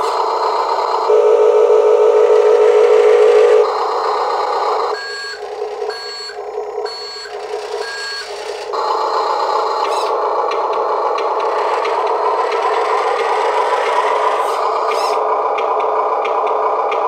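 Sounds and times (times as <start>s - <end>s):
toy truck running hum: 0.0s - 17.0s
reverse warning beeps: 0.7s - 10.1s.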